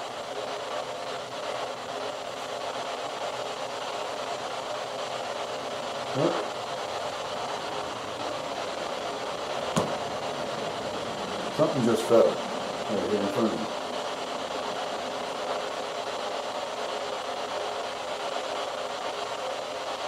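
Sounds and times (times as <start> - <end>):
steady hiss: 0.0 - 20.0
small object tapping on floor: 9.8 - 10.0.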